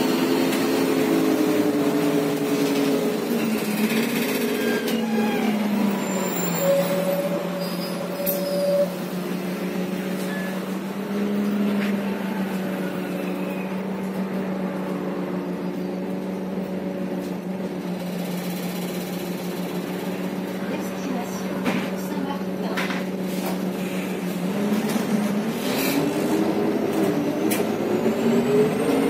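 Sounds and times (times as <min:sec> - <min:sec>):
bus engine drone: 0:00.0 - 0:29.0
short high squeal: 0:04.5 - 0:09.0.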